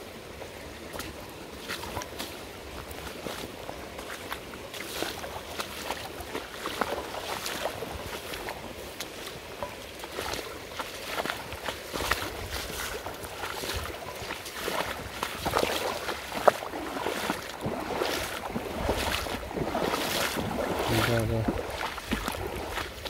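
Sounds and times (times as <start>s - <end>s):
river current rushing: 0.0s - 23.0s
splashing steps in water: 0.8s - 23.0s.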